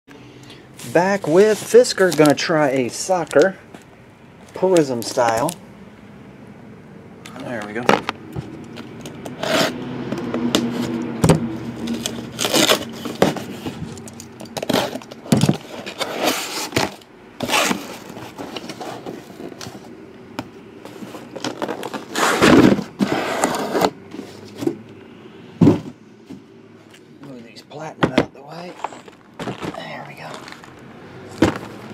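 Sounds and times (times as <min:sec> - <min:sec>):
cardboard scraping and tearing: 0:00.8 - 0:02.5, 0:09.4 - 0:09.8, 0:11.6 - 0:14.0, 0:14.6 - 0:19.9, 0:20.9 - 0:24.7.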